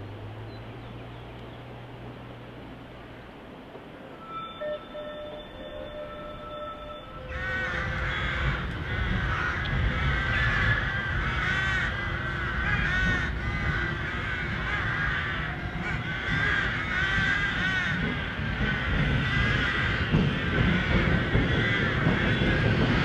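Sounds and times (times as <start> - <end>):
crows cawing: 7.2 - 23.0.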